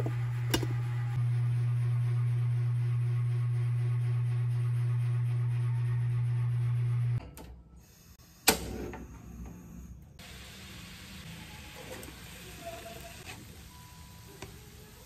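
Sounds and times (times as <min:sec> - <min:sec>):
steady low hum: 0:00.0 - 0:10.3
gas burner hissing: 0:10.2 - 0:15.0.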